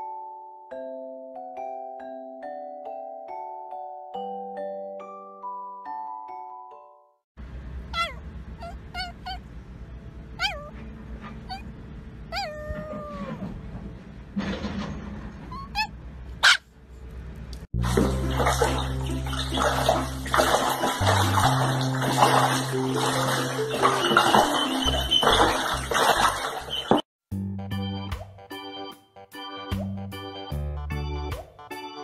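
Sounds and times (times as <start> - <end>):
small dog yipping and whining: 7.9 - 9.5, 10.4 - 11.7, 12.3 - 13.4, 15.5 - 16.6
dog howling: 12.3 - 13.4
background music: 17.8 - 25.8
ducklings splashing in water: 17.8 - 27.0.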